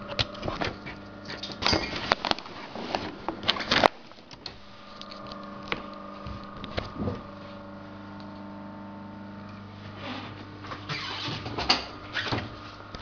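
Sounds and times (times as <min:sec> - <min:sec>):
steady electrical hum: 0:00.0 - 0:13.0
sailcloth rustling and crinkling: 0:01.9 - 0:04.0.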